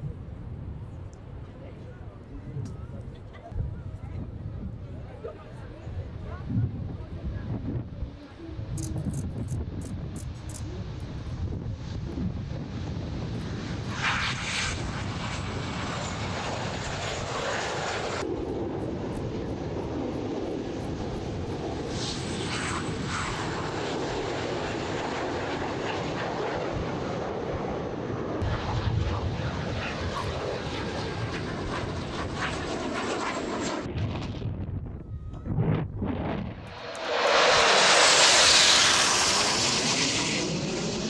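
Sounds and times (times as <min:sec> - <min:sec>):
jet engines rushing: 0:04.6 - 0:41.0.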